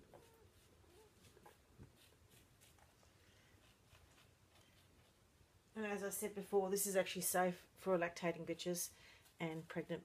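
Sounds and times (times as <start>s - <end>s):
faint soft rustles: 0.0s - 5.4s.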